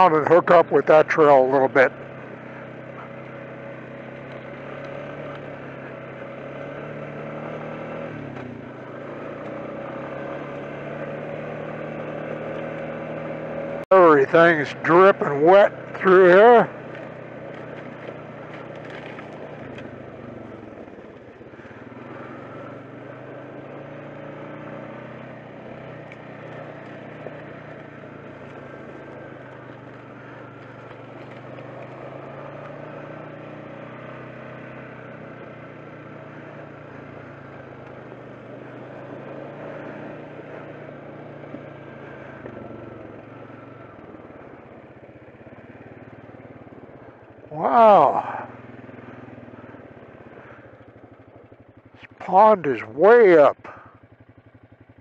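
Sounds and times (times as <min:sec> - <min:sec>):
quad bike engine running: 0:00.0 - 0:55.0.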